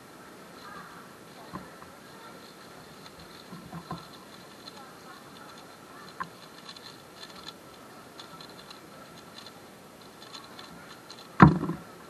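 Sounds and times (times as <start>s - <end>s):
puzzle cube layers clicking: 2.4s - 11.8s
cube thumping down: 11.4s - 11.9s.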